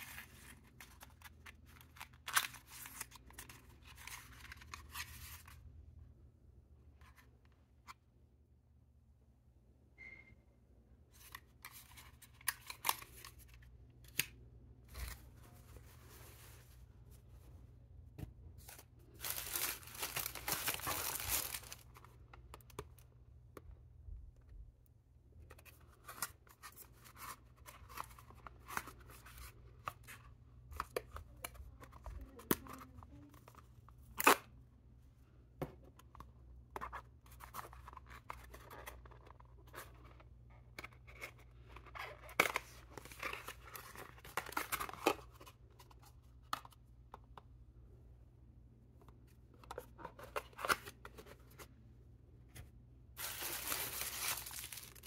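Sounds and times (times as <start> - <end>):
paper and cardboard rustling: 14.8 - 17.6, 18.6 - 22.1, 53.2 - 55.0.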